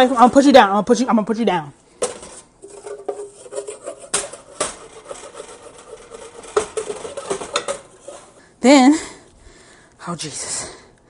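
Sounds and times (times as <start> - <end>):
wooden spoon scraping a saucepan: 0.0 - 0.6, 2.0 - 8.4.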